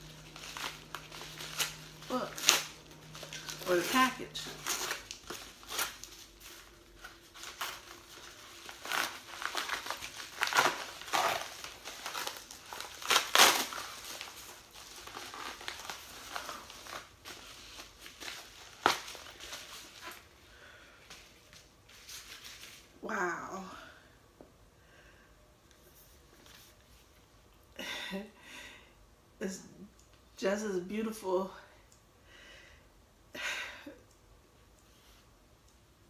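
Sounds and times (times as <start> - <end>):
paper mailer rustling and tearing: 0.0 - 20.3.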